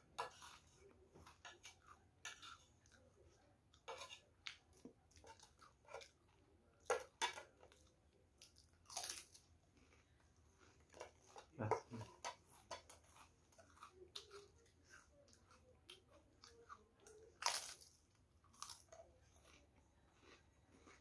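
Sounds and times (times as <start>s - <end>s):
crackers crunching: 6.9s - 21.0s.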